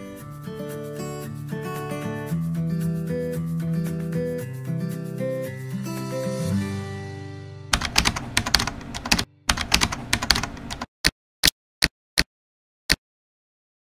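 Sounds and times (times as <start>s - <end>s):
music: 0.0s - 9.6s
keyboard typing clicks: 7.8s - 10.9s.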